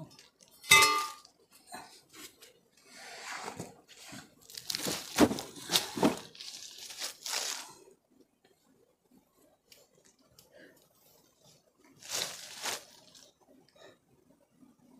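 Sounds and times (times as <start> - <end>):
leaf litter crunching and rustling: 4.4 - 7.8, 12.0 - 13.3
backpack set down on ground: 4.8 - 6.4.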